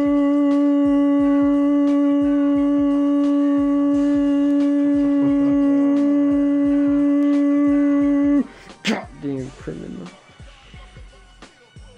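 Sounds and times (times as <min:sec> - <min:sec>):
loud droning tone: 0:00.0 - 0:08.4
wavering pitched sound: 0:00.0 - 0:08.5.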